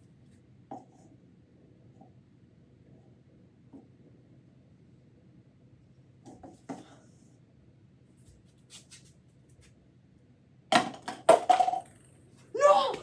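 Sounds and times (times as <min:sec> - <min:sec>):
ping-pong ball bouncing: 0:10.8 - 0:12.0
ping-pong ball clattering: 0:10.8 - 0:12.1.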